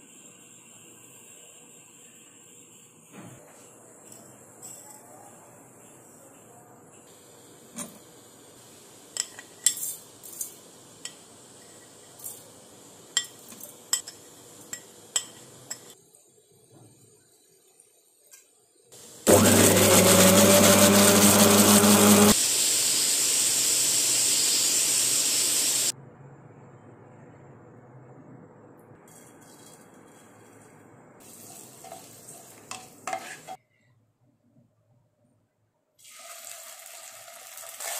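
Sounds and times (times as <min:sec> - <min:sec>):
blender running: 0:19.3 - 0:25.9.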